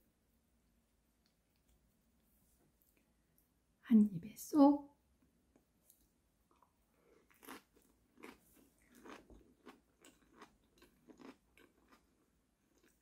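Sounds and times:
person chewing crunchy food: 0:06.5 - 0:13.0.

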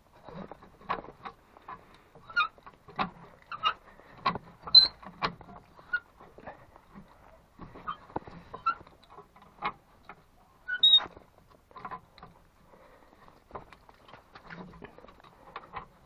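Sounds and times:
high metallic squeaks: 0:04.7 - 0:05.0, 0:10.7 - 0:11.1.

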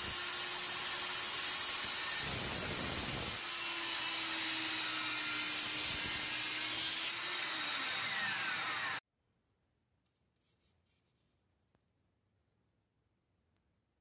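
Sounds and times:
circular saw cutting wood: 0:00.0 - 0:09.0
vacuum dust collector hiss: 0:00.0 - 0:09.0.

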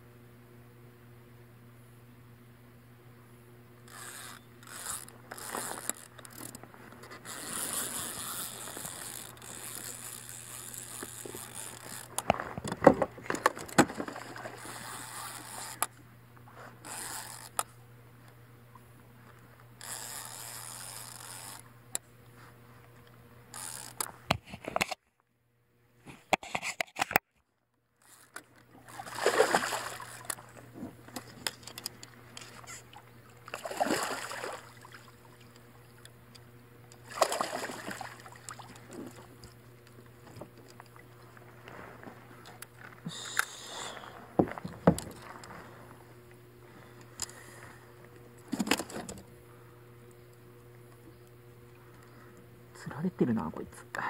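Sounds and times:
scrapes and knocks on boat: 0:11.0 - 0:14.8, 0:44.3 - 0:45.9
water splashing: 0:13.8 - 0:15.5, 0:28.7 - 0:30.7, 0:32.4 - 0:36.0, 0:37.0 - 0:39.3.

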